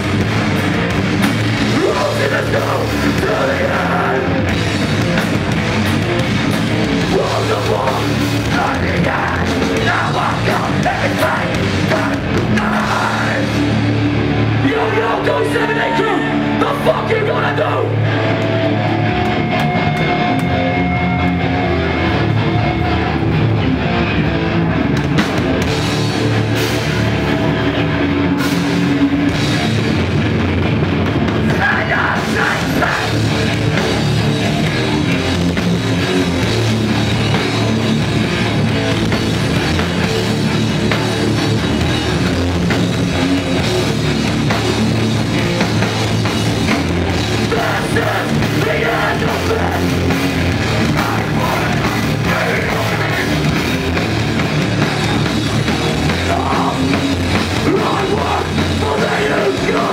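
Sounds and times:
bass guitar: 0.0s - 59.9s
drum kit: 0.0s - 59.9s
electric guitars: 0.0s - 59.9s
person singing into microphone: 57.6s - 59.9s.

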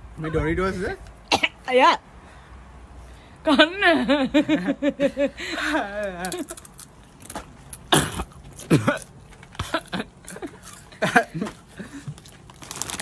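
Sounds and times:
crunching tortilla chip: 12.2s - 13.0s.

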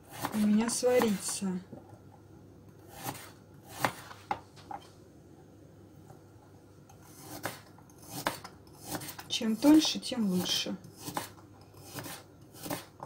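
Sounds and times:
knife chopping on cutting board: 0.1s - 1.3s, 2.9s - 4.1s, 7.1s - 13.0s.

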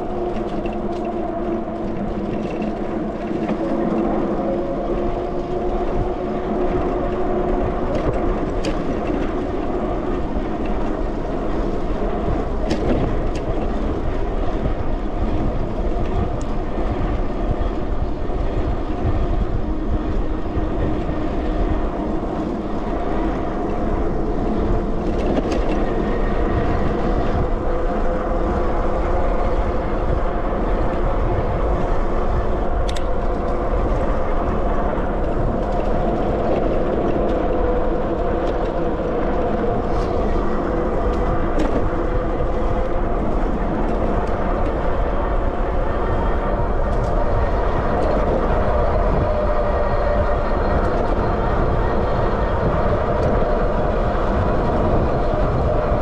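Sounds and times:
wind rushing over microphone: 0.0s - 56.0s
sharp clicks from bumps: 7.6s - 17.8s, 24.5s - 27.4s, 32.8s - 34.1s, 38.2s - 44.9s.

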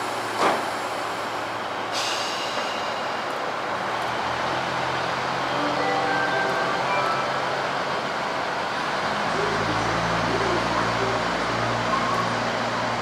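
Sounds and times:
diesel railcar running: 0.0s - 13.0s.

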